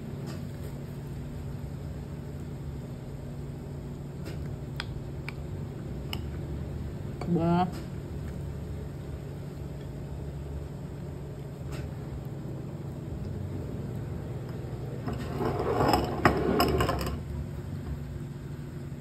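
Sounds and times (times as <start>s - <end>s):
steady low hum: 0.0s - 19.0s
metal spoon scraping in bowl: 15.1s - 17.2s.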